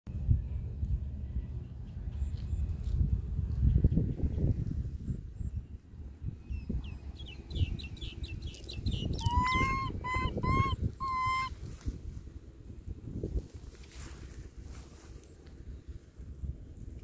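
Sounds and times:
steady low rumble: 0:00.1 - 0:17.0
high animal chirps: 0:09.0 - 0:11.6.

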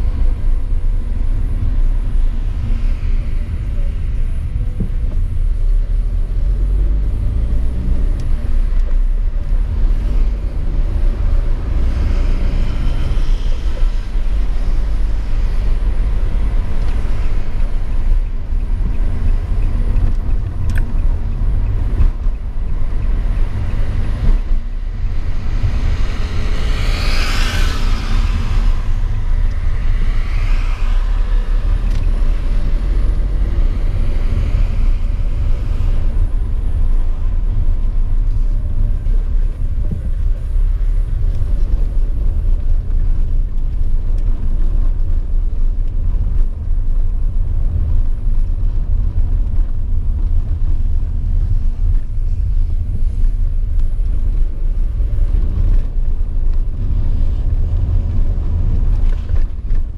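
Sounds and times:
car driving rumble: 0:00.0 - 0:59.9
vehicle passing hiss: 0:25.5 - 0:31.8.

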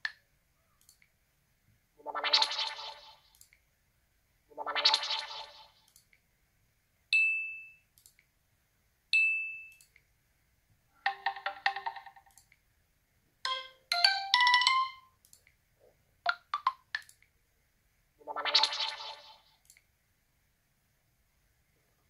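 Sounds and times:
marimba-like ringtone notes: 0:11.1 - 0:12.1, 0:13.5 - 0:15.1
phone chime: 0:13.5 - 0:15.0
phone high pings: 0:13.5 - 0:15.0.

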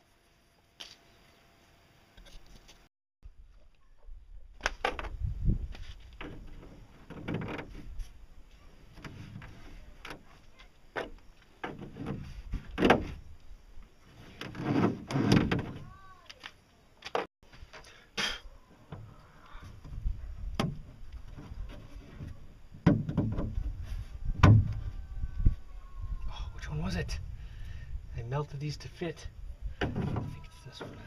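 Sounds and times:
plastic pipe parts knocking: 0:22.8 - 0:23.7.

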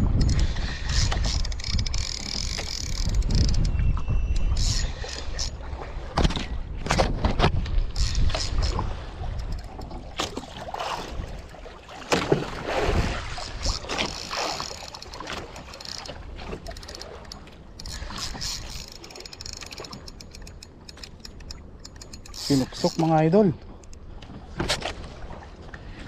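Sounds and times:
wind buffeting microphone: 0:00.0 - 0:20.0
water lapping against boat hull: 0:00.0 - 0:26.0.

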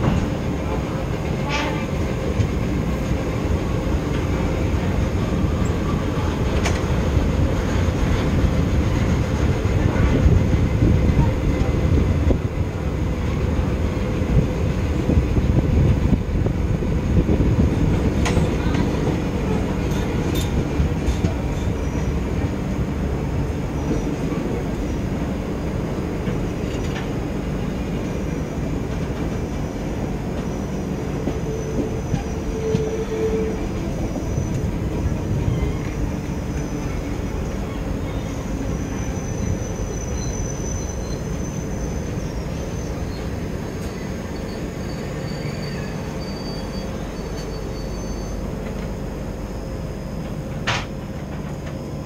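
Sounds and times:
train rumbling on rails: 0:00.0 - 0:52.0
high-pitched wheel squeal: 0:37.6 - 0:48.5.

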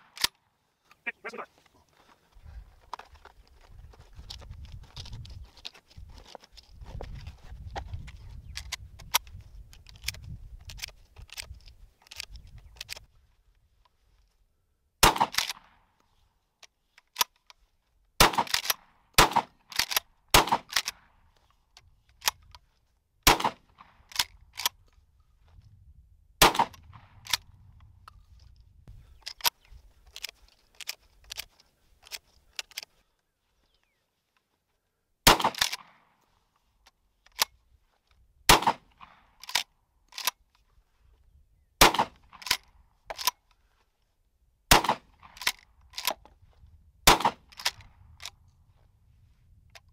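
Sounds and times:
shells clicking into magazine: 0:00.0 - 0:00.4, 0:08.5 - 0:13.1, 0:15.1 - 0:17.6, 0:18.3 - 0:22.7, 0:23.4 - 0:24.8, 0:29.1 - 0:33.0, 0:35.3 - 0:36.0, 0:38.5 - 0:40.4, 0:41.9 - 0:43.5, 0:44.7 - 0:46.3, 0:47.1 - 0:48.4
shotgun shots: 0:15.0 - 0:15.7, 0:18.2 - 0:20.8, 0:23.2 - 0:23.9, 0:26.4 - 0:27.2, 0:35.2 - 0:35.9, 0:38.5 - 0:39.2, 0:41.8 - 0:42.3, 0:44.7 - 0:45.4, 0:47.0 - 0:47.6
shotgun pump racking: 0:19.7 - 0:20.0, 0:42.3 - 0:43.4.

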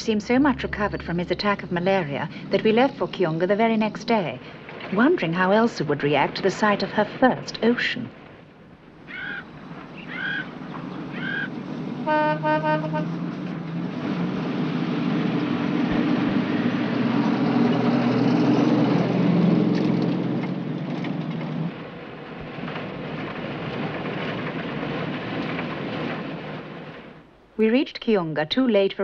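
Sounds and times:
vehicle horn short blasts: 0:12.1 - 0:13.1.

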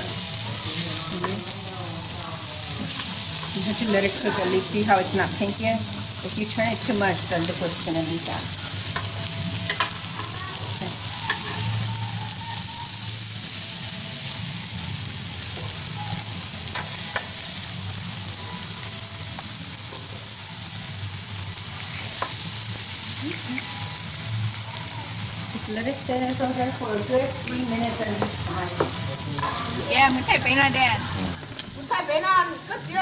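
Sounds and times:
shrimp sizzling on a grill: 0:00.0 - 0:33.0
metal tongs clicking on grill: 0:08.8 - 0:10.3, 0:11.2 - 0:11.7, 0:16.7 - 0:17.4.

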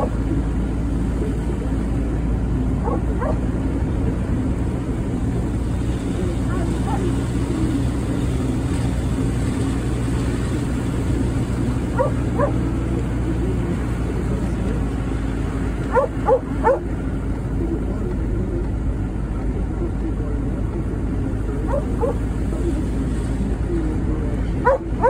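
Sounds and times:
vehicle engine and road noise: 0:00.0 - 0:25.0
dog yipping: 0:02.8 - 0:03.4, 0:06.5 - 0:07.1, 0:11.9 - 0:12.6, 0:15.9 - 0:16.9, 0:21.7 - 0:22.2, 0:24.6 - 0:25.0.

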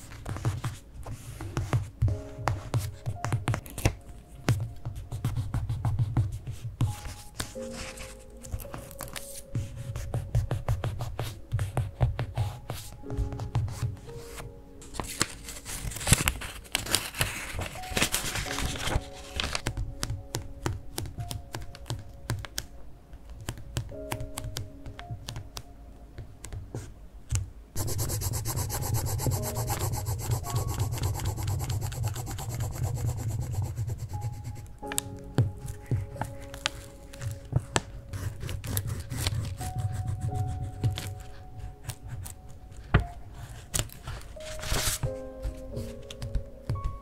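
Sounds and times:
wooden stick rubbing on paper: 0:27.8 - 0:35.0.

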